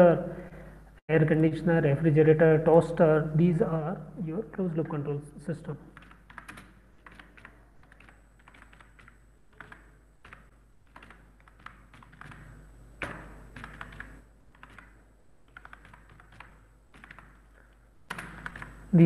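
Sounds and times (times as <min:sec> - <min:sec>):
typing on computer keyboard: 0:06.0 - 0:18.8.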